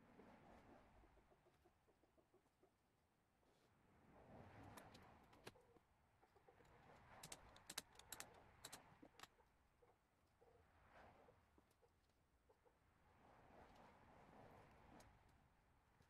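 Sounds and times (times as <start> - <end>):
faint sharp clicks: 7.2 - 9.3.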